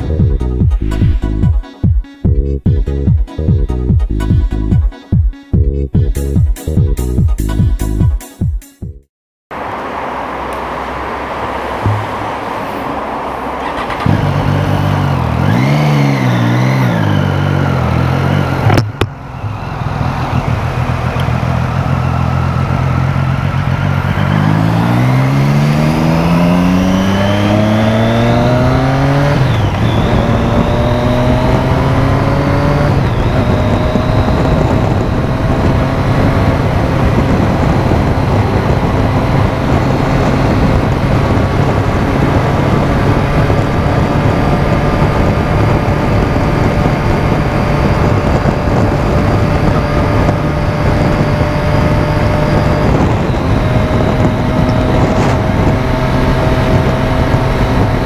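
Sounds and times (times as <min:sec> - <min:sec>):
road noise: 0:00.0 - 0:01.5, 0:09.5 - 0:58.0
motorcycle engine revving: 0:09.6 - 0:58.0
wind noise: 0:11.7 - 0:58.0.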